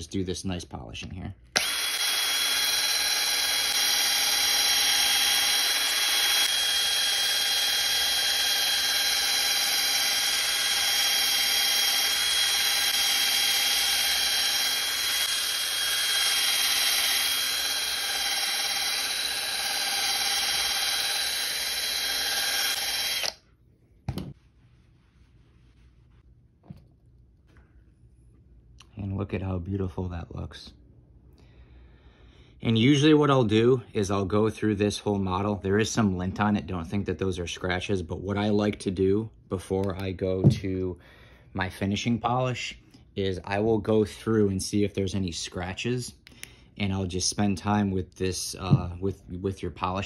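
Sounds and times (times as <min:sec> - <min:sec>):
rotary polisher whining: 0:01.6 - 0:23.4.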